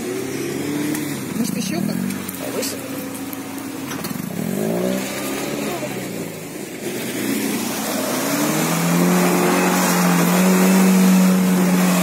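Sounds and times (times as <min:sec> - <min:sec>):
engine revving hard: 0:04.1 - 0:12.0.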